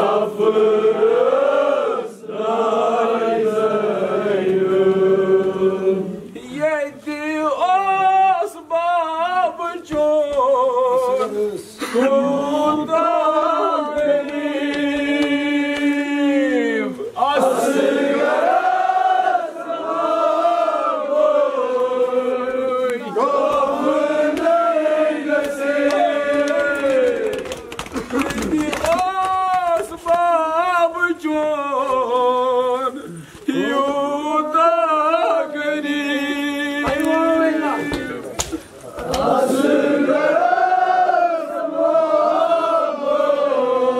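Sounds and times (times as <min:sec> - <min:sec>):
man chanting unaccompanied: 0:06.4 - 0:17.7, 0:28.4 - 0:39.3
man chanting a lament: 0:28.4 - 0:39.1.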